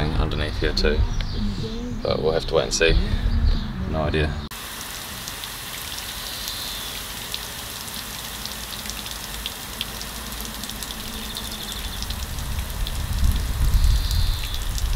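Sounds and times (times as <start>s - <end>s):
low rumble: 0.0s - 4.5s
water spraying and dripping: 4.5s - 14.9s.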